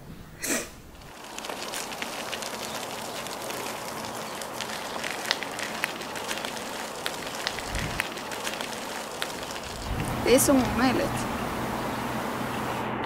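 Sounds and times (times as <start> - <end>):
footsteps on gravel: 1.0 - 11.4
stroller wheels on gravel: 1.0 - 12.1.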